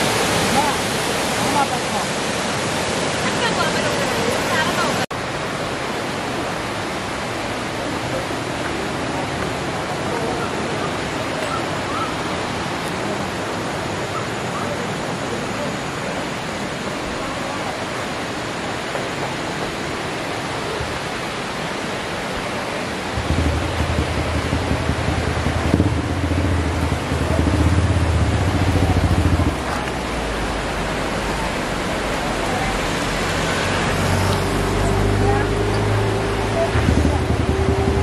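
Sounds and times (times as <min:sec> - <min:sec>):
waterfall rushing: 0:00.0 - 0:38.0
cars driving past: 0:23.1 - 0:38.0.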